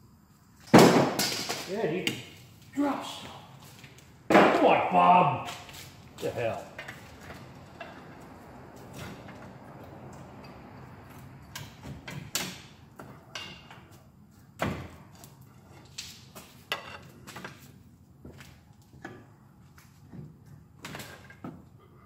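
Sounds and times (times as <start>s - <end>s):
sharp metal clanks and knocks: 11.2s - 13.9s.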